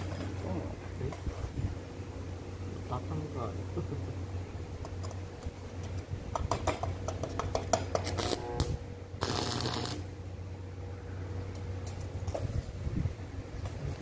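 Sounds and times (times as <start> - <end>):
welding electrode crackling clicks: 4.8 - 10.1
welding arc sizzle: 7.4 - 10.2.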